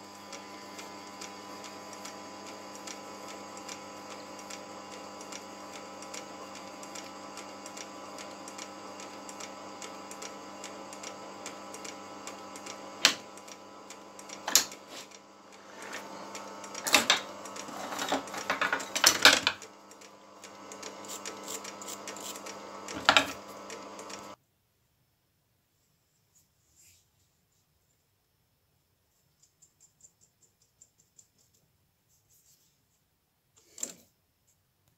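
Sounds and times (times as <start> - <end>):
light ticking from lathe drive: 0.0 - 24.4
metal lathe humming: 0.0 - 24.4.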